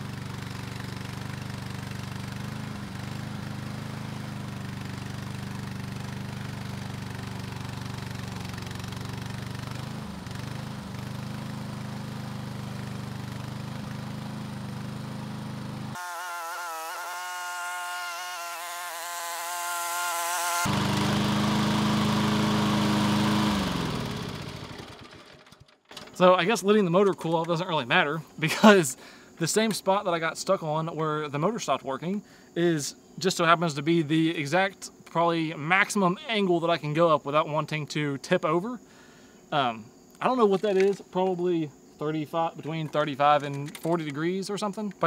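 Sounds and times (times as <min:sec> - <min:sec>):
lawn mower running: 0:00.0 - 0:27.6, 0:42.4 - 0:45.0.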